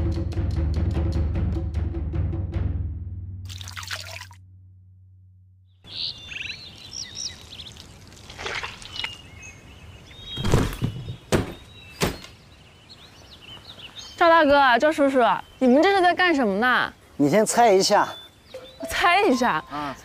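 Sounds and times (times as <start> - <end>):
background music: 0.0 - 4.2
birds chirping: 5.7 - 20.0
dull thuds of earth blocks: 10.3 - 12.3.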